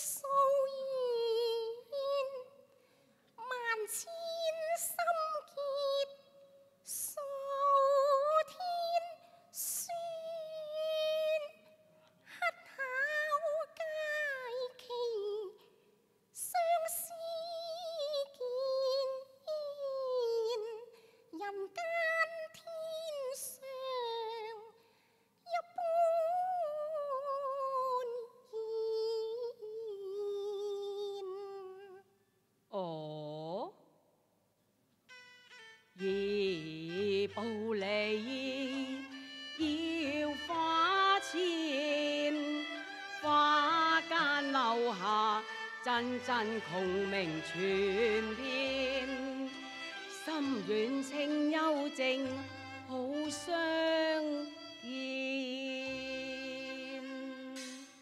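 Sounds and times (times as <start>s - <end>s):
woman singing opera: 0.0s - 2.6s, 3.4s - 11.8s, 12.4s - 15.6s, 16.4s - 24.7s, 25.5s - 32.0s, 32.8s - 33.8s, 36.0s - 57.6s.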